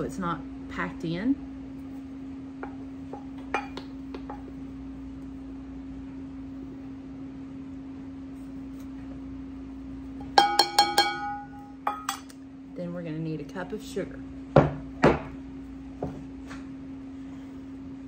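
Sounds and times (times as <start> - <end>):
steady low hum: 0.0 - 18.0
glass clinks: 10.4 - 12.3.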